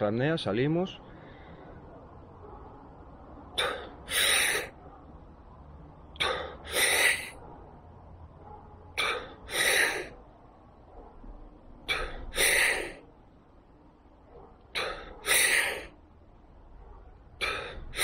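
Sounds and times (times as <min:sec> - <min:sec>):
man exhaling: 0:11.9 - 0:13.0.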